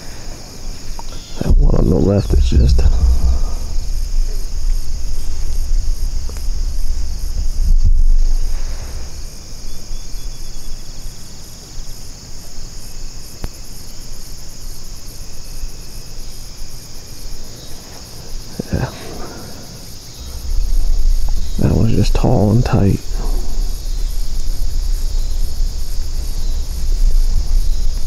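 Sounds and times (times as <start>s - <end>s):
insects high shrill: 0.0s - 28.0s
insects pulsing trill: 0.0s - 28.0s
low rumble: 1.4s - 10.9s, 18.6s - 28.0s.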